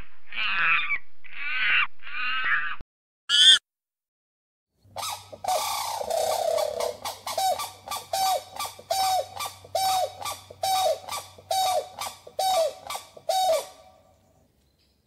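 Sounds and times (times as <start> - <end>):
animal calling: 5.0 - 14.0.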